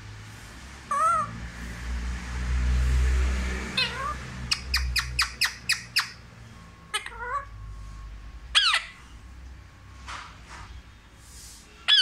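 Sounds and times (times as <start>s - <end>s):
parakeet calling and squawking: 0.8s - 1.4s, 3.6s - 9.4s, 11.8s - 12.0s.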